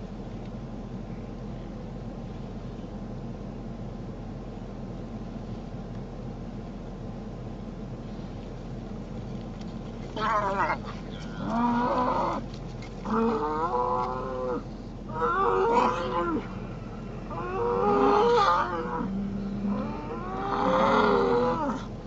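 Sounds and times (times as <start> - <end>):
low background noise: 0.0 - 22.0
bull bellowing: 10.2 - 22.0.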